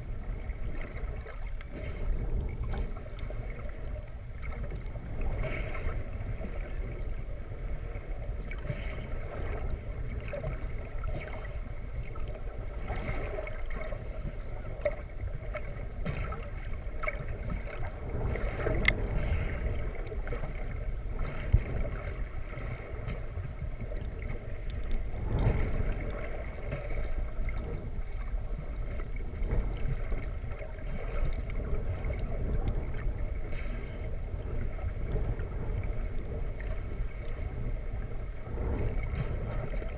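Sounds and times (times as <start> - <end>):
underwater rumble of moving water: 0.0 - 39.9
faint ticks: 18.7 - 19.0.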